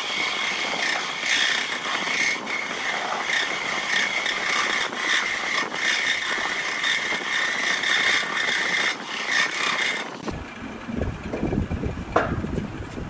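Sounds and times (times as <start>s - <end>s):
lathe tool cutting wood: 0.0s - 10.4s
low rumble: 10.3s - 13.0s.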